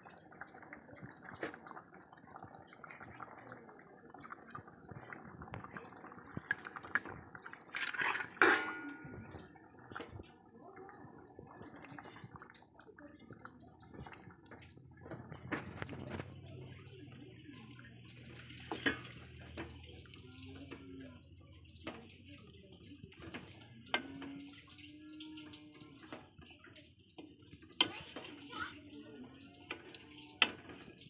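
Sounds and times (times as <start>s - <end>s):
curry bubbling in pot: 0.0s - 31.0s
wooden spatula stirring pot: 0.0s - 31.0s
fish clattering into metal pot: 6.3s - 10.1s, 18.5s - 19.9s.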